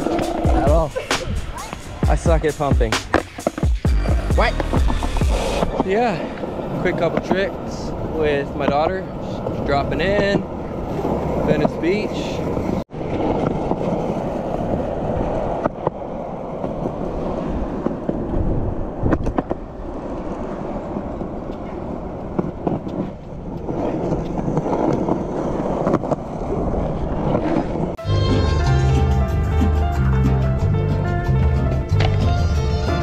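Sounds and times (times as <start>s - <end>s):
music: 0.0s - 5.7s, 28.0s - 33.0s
skateboard wheels rolling on concrete: 0.0s - 33.0s
skateboard clacks: 3.0s - 3.8s, 15.3s - 28.0s, 31.9s - 32.4s.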